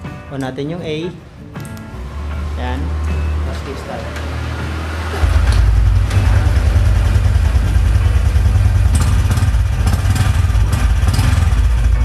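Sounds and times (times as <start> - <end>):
motorcycle engine idling: 5.2 - 12.0.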